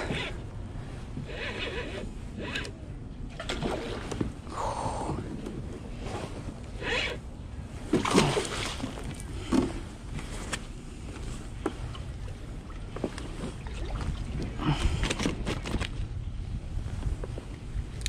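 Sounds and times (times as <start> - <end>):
water sloshing: 3.3 - 4.5, 7.8 - 15.9
fish splashing: 8.0 - 9.1.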